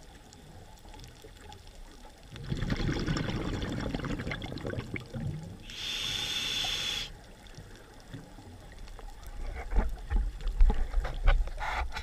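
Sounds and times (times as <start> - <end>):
exhaled bubbles underwater: 0.0 - 5.7
regulator inhalation hiss: 5.6 - 7.2.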